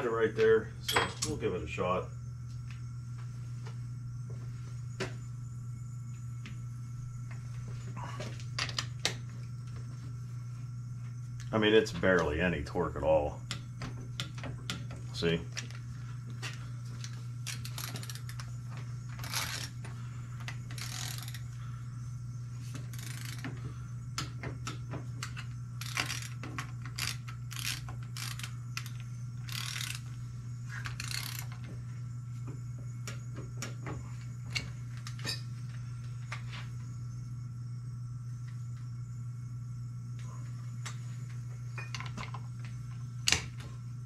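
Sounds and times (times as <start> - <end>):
steady low hum: 0.0 - 44.0
ratchet wrench clicking: 17.5 - 18.4, 20.7 - 21.4, 22.9 - 23.4, 25.8 - 30.0, 30.8 - 31.6.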